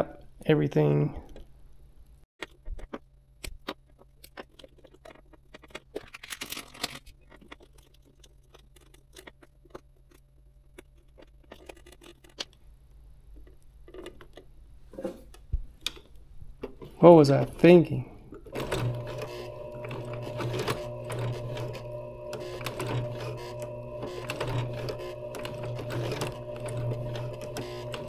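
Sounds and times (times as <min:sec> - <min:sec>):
crinkling rustles: 0:02.4 - 0:12.6
steady low hum: 0:18.6 - 0:28.0.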